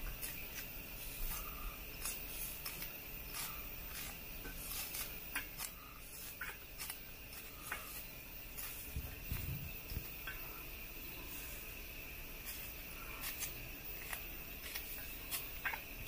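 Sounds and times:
knife slicing pepper: 0:01.3 - 0:08.8, 0:12.5 - 0:15.9.

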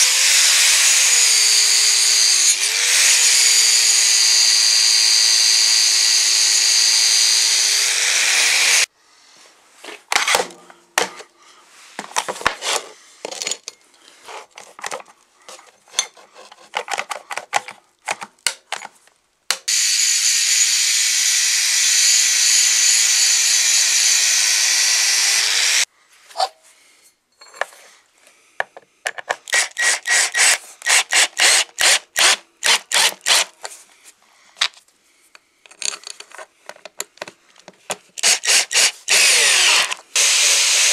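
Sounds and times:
angle grinder grinding metal: 0:00.0 - 0:08.9, 0:19.7 - 0:25.9, 0:38.2 - 0:40.9.

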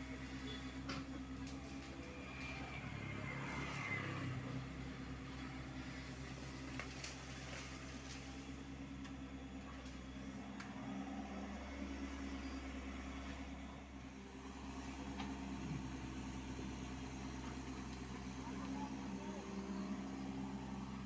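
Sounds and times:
excavator diesel engine: 0:00.0 - 0:21.0.

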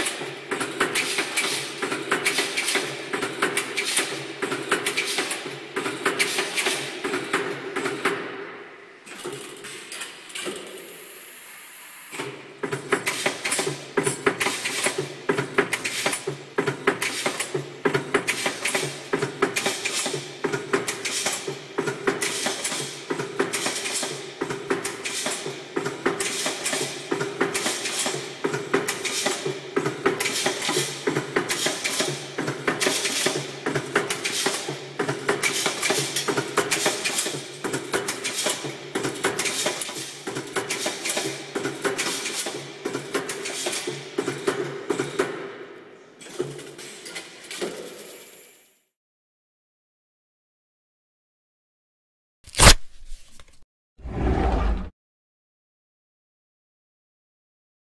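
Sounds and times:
metallic clatter of machine: 0:00.0 - 0:08.2, 0:09.0 - 0:11.0, 0:12.2 - 0:45.3, 0:46.2 - 0:48.6.

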